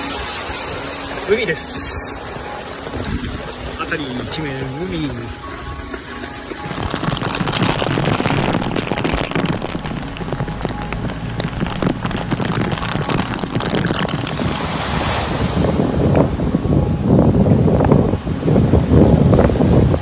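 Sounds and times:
sharp hiss: 0.0s - 2.2s
rushing water: 0.0s - 20.0s
wind buffeting microphone: 0.0s - 20.0s.

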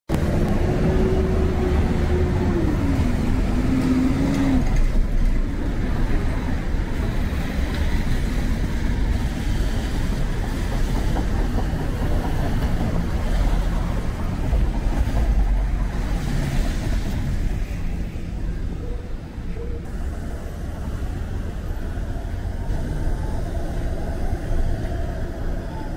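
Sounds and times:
cars passing on wet pavement: 0.1s - 25.9s
engines rumbling: 0.1s - 25.9s.

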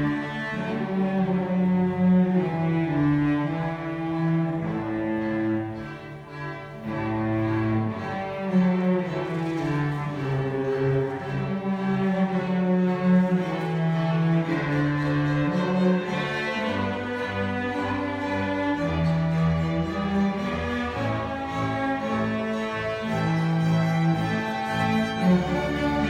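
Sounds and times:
cellos and double bass bowing: 0.0s - 26.0s.

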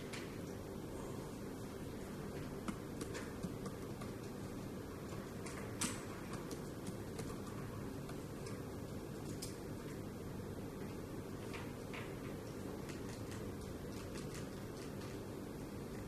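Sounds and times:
low background hum: 0.0s - 16.0s
tapping on touchscreen keyboard: 2.6s - 4.3s.

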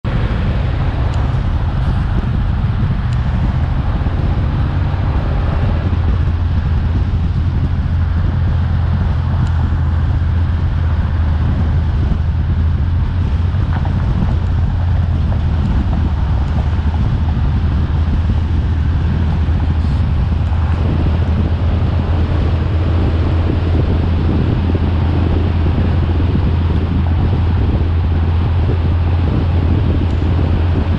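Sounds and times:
car engine drone: 0.0s - 30.9s
wind rushing over microphone: 0.0s - 30.9s.

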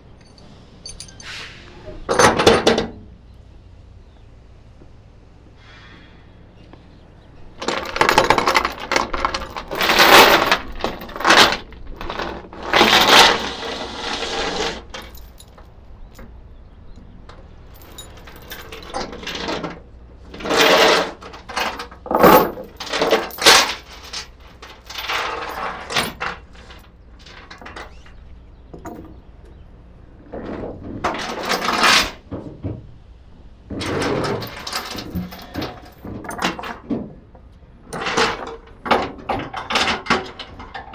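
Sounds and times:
steel chains rattling and clanking: 0.2s - 3.0s, 7.5s - 16.4s, 17.6s - 28.2s, 28.8s - 29.3s, 30.4s - 32.2s, 33.7s - 37.0s, 37.8s - 40.9s.

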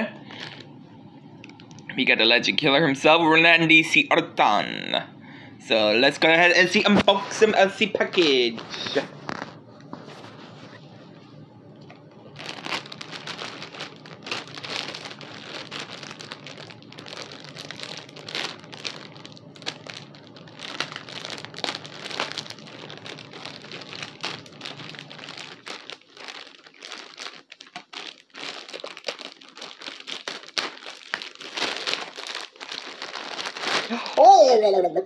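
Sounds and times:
packaging crinkling and rustling: 0.3s - 0.7s, 6.1s - 10.9s, 11.8s - 34.3s.

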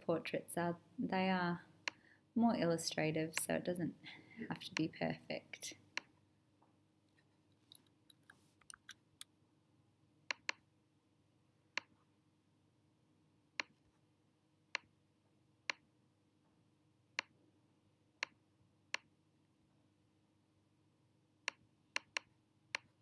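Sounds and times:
computer mouse clicks: 10.3s - 10.6s, 21.4s - 23.0s.

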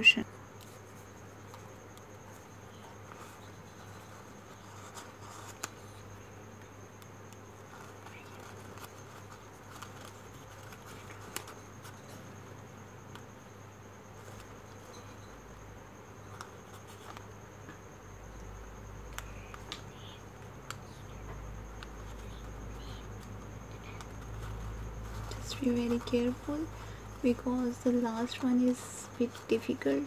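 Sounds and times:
paper crinkling and clicking: 7.3s - 12.2s, 21.8s - 30.0s.

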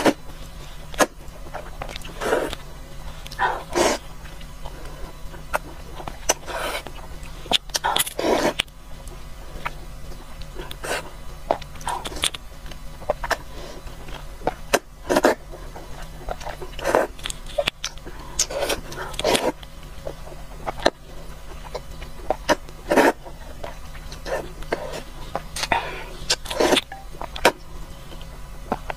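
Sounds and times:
person slurping noodles: 3.5s - 4.1s.

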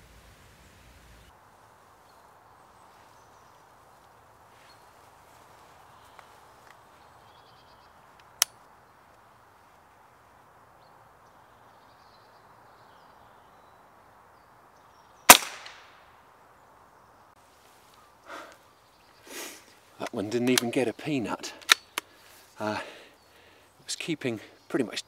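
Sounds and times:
air rifle shot crack: 15.3s - 16.0s.

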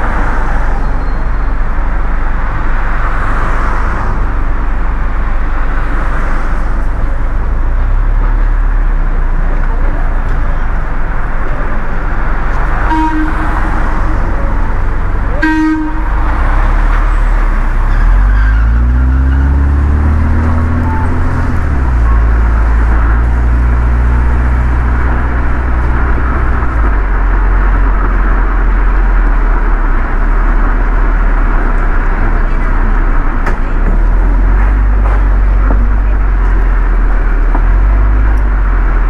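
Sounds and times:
car horn toots: 12.8s - 14.1s, 15.3s - 16.2s
vehicle engine pulling away: 16.0s - 39.0s.

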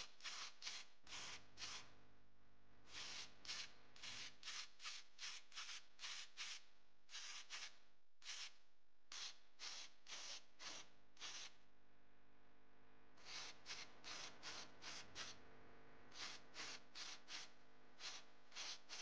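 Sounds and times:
paint spraying in short bursts: 0.2s - 1.8s, 2.9s - 6.6s, 7.2s - 7.7s, 9.1s - 11.5s, 13.2s - 15.4s, 16.1s - 19.0s.

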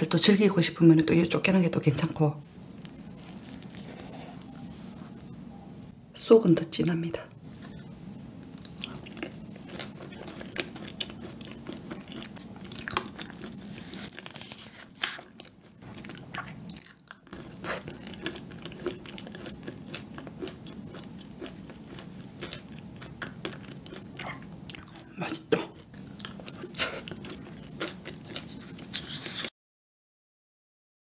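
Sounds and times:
wet chewing mouth sounds: 7.5s - 29.5s.

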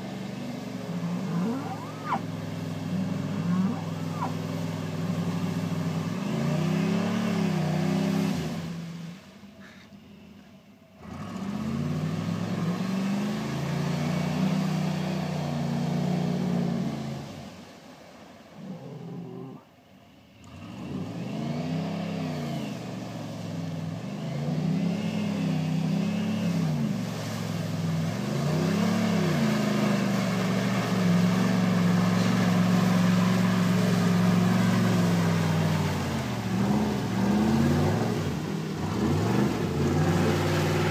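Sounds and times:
truck engine revving: 0.0s - 8.8s, 11.0s - 17.4s, 20.4s - 40.9s.

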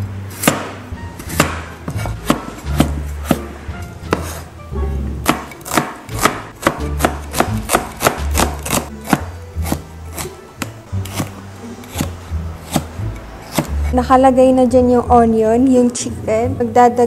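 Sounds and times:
background music: 0.0s - 17.0s
knife chopping on plastic board: 0.4s - 3.5s, 4.1s - 4.4s, 5.2s - 13.9s.

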